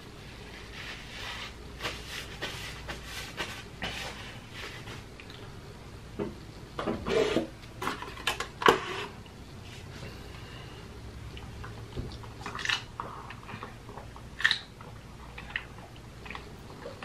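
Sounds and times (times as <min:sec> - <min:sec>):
paper napkin rustling: 0:00.2 - 0:05.1.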